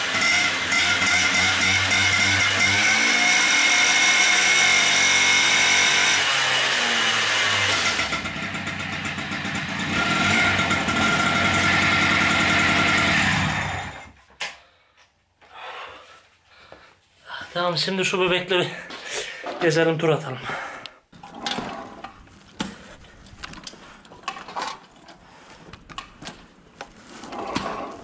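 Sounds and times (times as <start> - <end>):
moped engine revving: 0.0 - 14.2.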